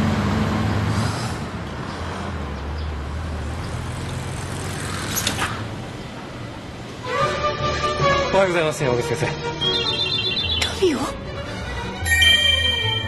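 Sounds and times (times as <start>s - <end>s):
bus engine rumbling: 0.0s - 8.2s.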